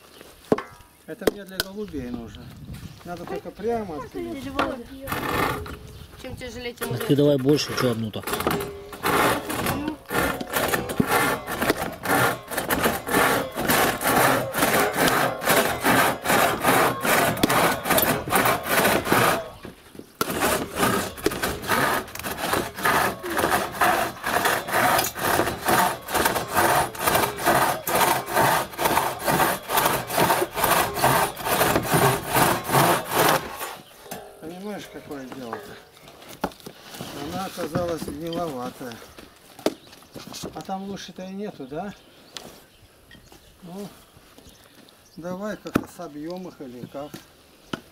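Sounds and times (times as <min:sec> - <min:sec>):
crosscut saw cutting wood: 0:04.6 - 0:05.8, 0:06.8 - 0:35.8.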